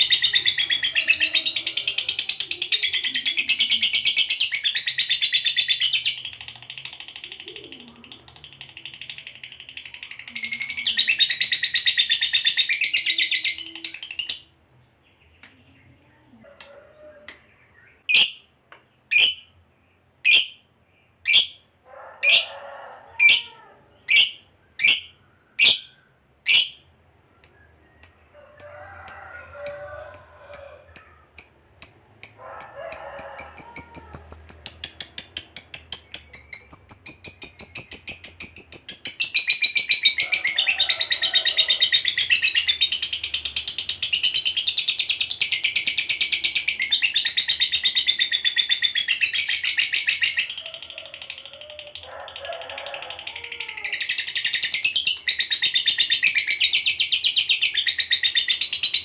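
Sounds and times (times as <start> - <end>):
lovebird shrill chatter: 18.1 - 18.4, 19.1 - 19.5, 24.1 - 26.8.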